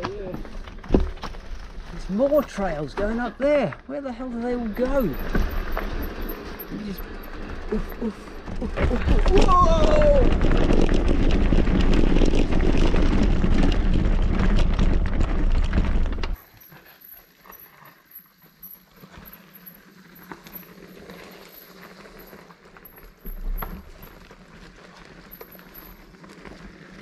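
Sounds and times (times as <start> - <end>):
bike clicks and light knocks: 0.0 - 16.6, 17.4 - 27.0
rushing and rumbling noise: 5.0 - 16.4.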